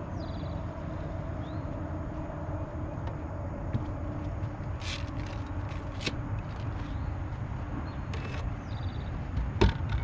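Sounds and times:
steady low rumble: 0.0s - 10.0s
fishing gear rustling and clicking: 3.8s - 7.0s, 8.0s - 8.6s.

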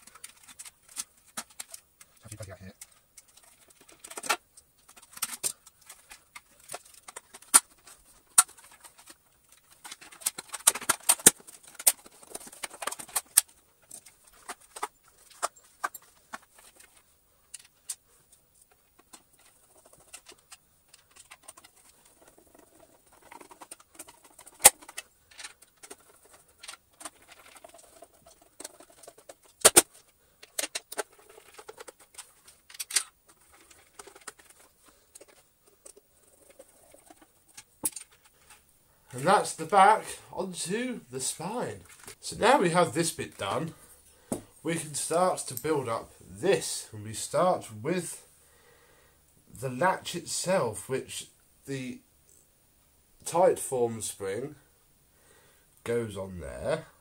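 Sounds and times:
plastic parts clicking and rattling: 0.0s - 47.4s.

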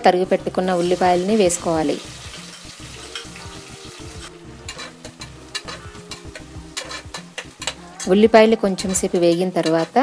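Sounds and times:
onions sizzling in oil: 0.0s - 10.0s
metal spoon scraping pot: 4.6s - 10.0s.

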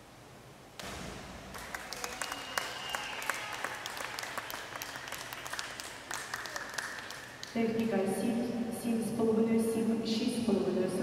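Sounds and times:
spectators applauding and cheering: 1.5s - 7.6s.

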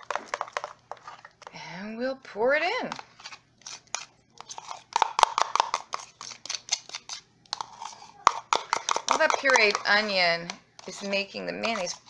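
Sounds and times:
utensil scraping plastic container: 2.9s - 10.2s, 10.8s - 12.0s.

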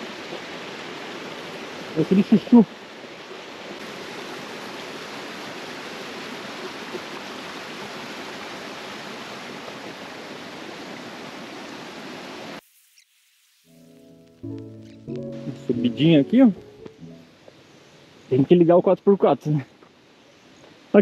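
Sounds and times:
stream rushing over stones: 0.0s - 12.7s.

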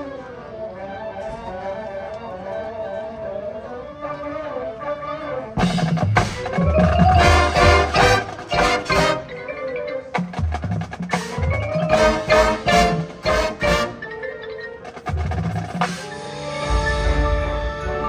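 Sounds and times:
marching band playing: 4.0s - 18.0s
brass and percussion hits: 5.6s - 9.6s, 10.2s - 14.2s
mallet percussion ringing: 6.6s - 15.7s.

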